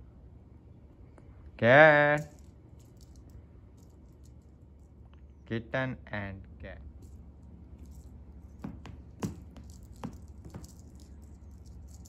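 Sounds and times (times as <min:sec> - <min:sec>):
low steady hum: 0:00.0 - 0:12.0
cat toy rattling: 0:02.2 - 0:05.0, 0:06.9 - 0:12.0
soft taps: 0:08.6 - 0:11.0.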